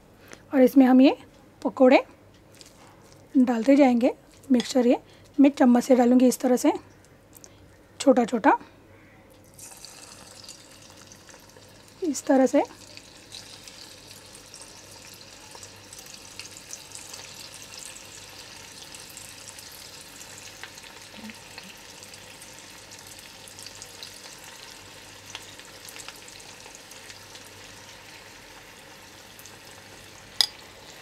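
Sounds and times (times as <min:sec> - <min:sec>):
batter sizzling in hot oil: 0:09.6 - 0:31.0.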